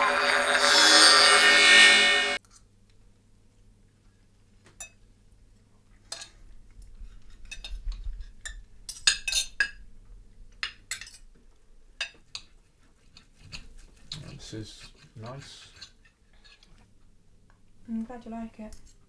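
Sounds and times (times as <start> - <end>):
cutlery clinking on plates: 7.3 - 9.8, 10.6 - 11.3.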